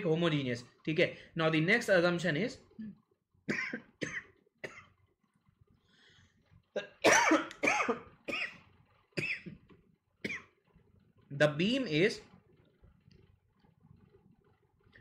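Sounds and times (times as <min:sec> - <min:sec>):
man coughing: 0:06.8 - 0:08.6.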